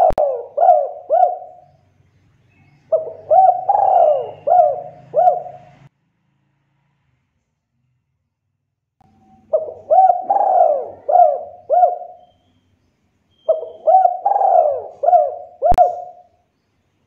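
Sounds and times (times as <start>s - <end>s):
dove cooing: 0.0s - 1.8s, 2.8s - 5.9s, 9.2s - 12.4s, 13.4s - 16.4s.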